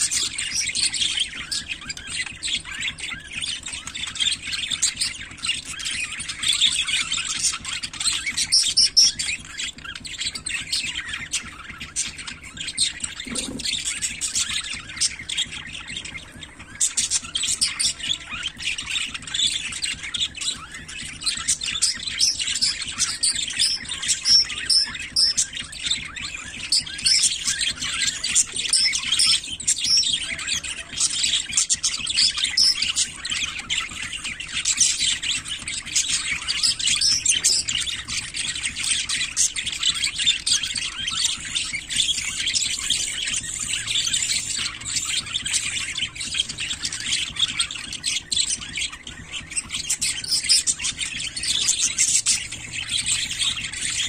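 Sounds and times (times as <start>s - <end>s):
budgerigars chirping: 0.0s - 54.0s.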